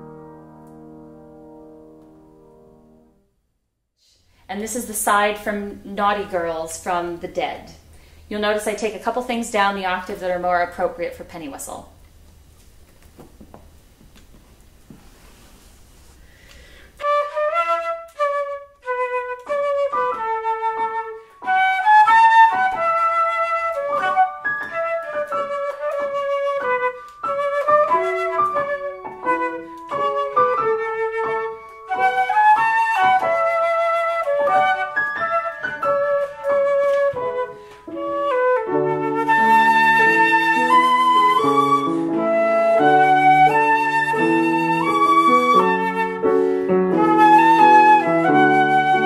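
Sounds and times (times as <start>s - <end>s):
piano accompaniment: 0.0s - 3.3s, 17.0s - 49.0s
flute solo melody: 17.0s - 49.0s.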